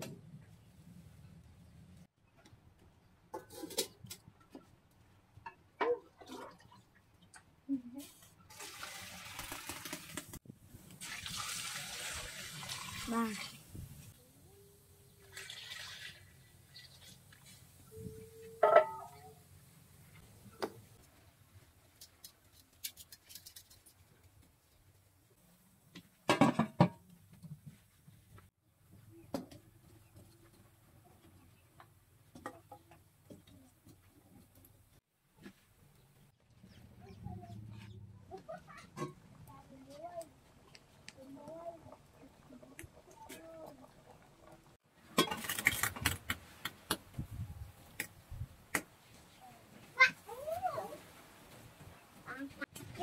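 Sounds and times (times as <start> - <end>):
water pouring into pot: 8.5 - 13.7, 15.2 - 16.8.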